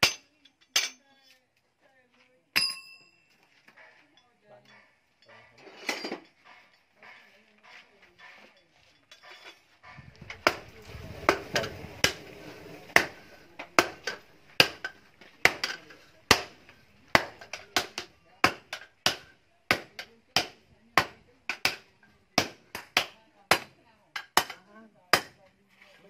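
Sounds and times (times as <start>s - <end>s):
sledgehammers striking steel on anvil: 0.0s - 1.1s, 2.6s - 3.2s, 10.3s - 25.4s.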